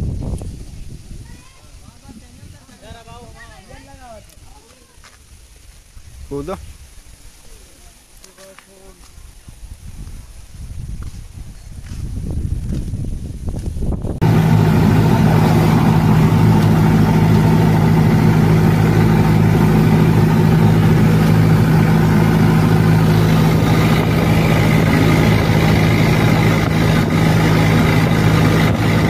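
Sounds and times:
truck engine droning: 0:14.2 - 0:29.0.

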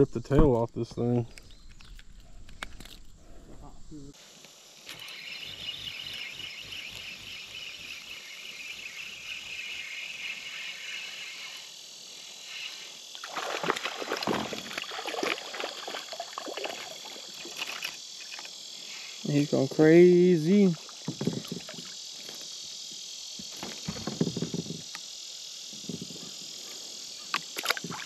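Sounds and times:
high-pitched insect buzz: 0:02.8 - 0:28.0
fish splashing and thrashing: 0:13.2 - 0:18.6, 0:20.8 - 0:22.0, 0:27.4 - 0:28.0.

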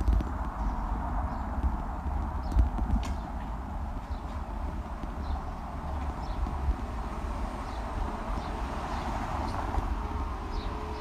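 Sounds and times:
rumble and rattle over bricks: 0:00.0 - 0:08.5
wind buffeting microphone: 0:00.0 - 0:11.0.

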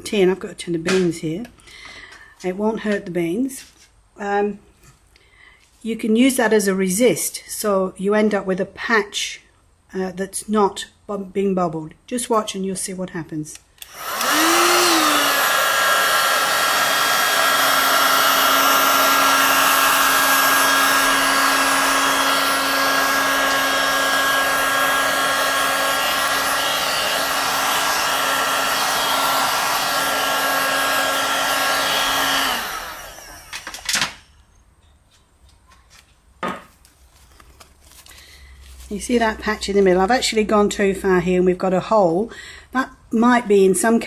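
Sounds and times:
heat gun blowing: 0:13.8 - 0:34.4.

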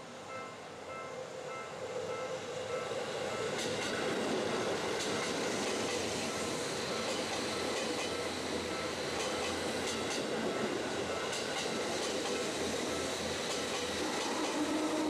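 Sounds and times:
train wheels rumbling on rails: 0:00.3 - 0:15.0
wheels clicking over rail joints: 0:03.4 - 0:15.0.

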